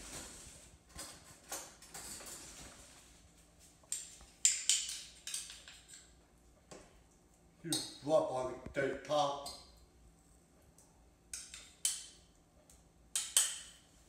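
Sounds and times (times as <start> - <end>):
soft rustle: 2.3 - 4.2.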